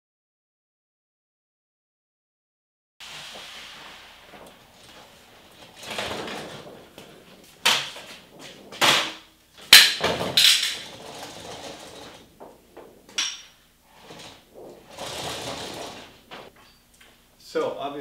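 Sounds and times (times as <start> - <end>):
large paper sheet rustling: 3.0 - 13.1, 13.9 - 16.5.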